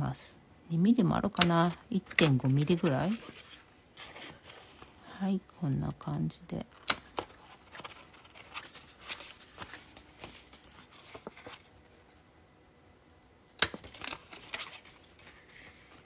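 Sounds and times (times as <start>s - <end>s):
paper rustling: 1.6s - 5.0s, 7.0s - 12.2s, 13.7s - 16.0s
hole punch snapping through paper: 13.6s - 14.2s.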